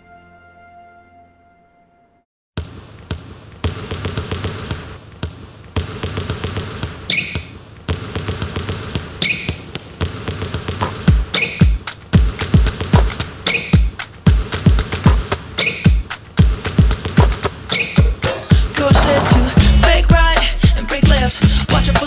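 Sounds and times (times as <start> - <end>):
basketball dribbling on wooden floor: 2.6 - 18.0, 18.9 - 19.8
sneaker squeak: 7.0 - 7.6, 9.2 - 9.7, 11.3 - 11.8, 13.4 - 13.9, 15.6 - 16.0, 17.7 - 18.2.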